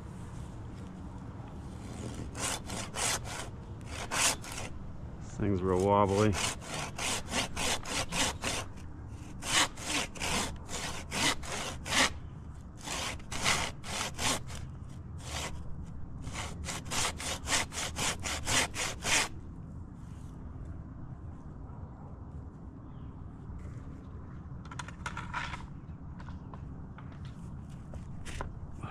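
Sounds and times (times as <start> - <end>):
hand saw cutting wood: 1.8 - 4.7, 5.7 - 12.2, 12.8 - 15.6, 16.2 - 19.3.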